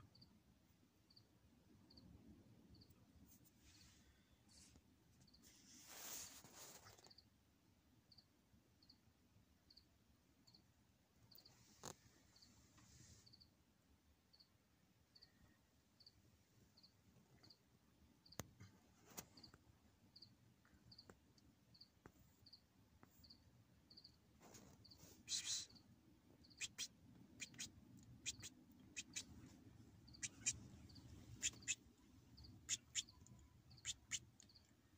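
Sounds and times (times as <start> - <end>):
faint high chirp: 14.3 - 16.2, 24.8 - 34.7.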